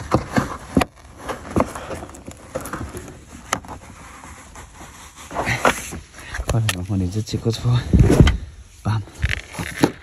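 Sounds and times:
carpet rubbing: 0:00.2 - 0:06.2.

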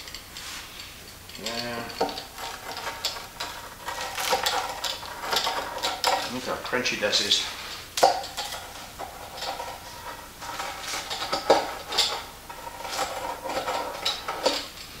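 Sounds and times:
pizza cutter crunching through crust: 0:01.4 - 0:06.4.

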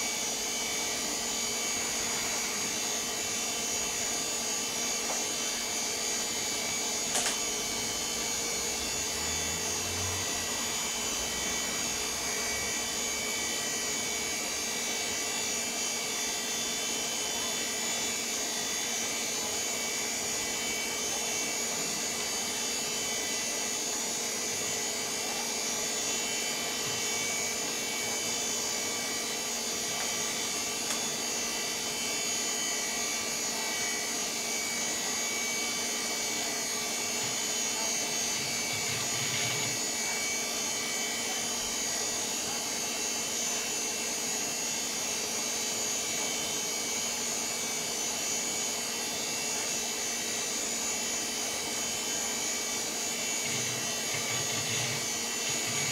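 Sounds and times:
computer fans and disk whirring: 0:00.0 - 0:55.9.

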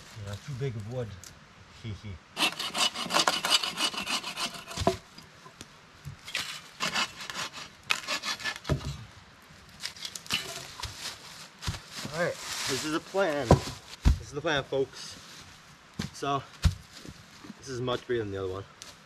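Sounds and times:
saw cutting through a log: 0:02.4 - 0:05.0, 0:06.4 - 0:08.8.

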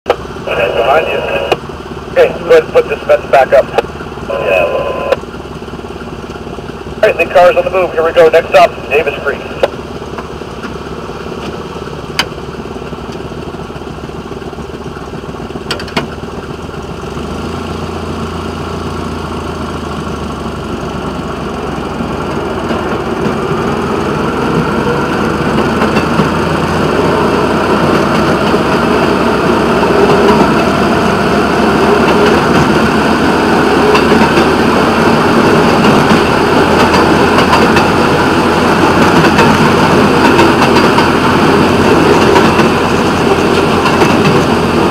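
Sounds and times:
railway motorcar engine running: 0:00.1 - 0:44.9
steel wheels rolling on rails: 0:20.9 - 0:44.9.

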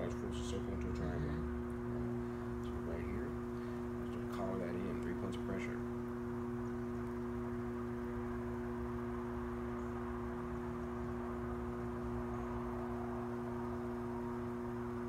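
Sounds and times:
potter's wheel motor hum: 0:00.0 - 0:15.0.

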